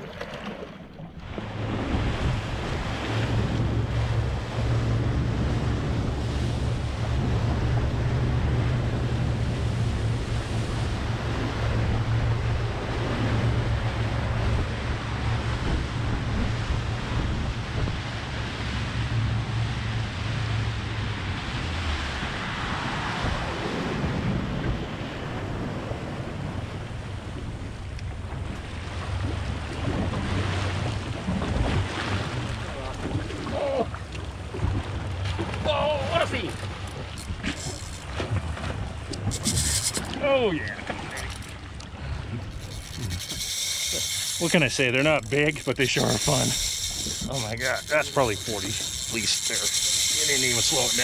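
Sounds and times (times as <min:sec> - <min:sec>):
sea water around a boat: 0:00.0 - 0:51.0
wind buffeting microphone: 0:01.3 - 0:20.3.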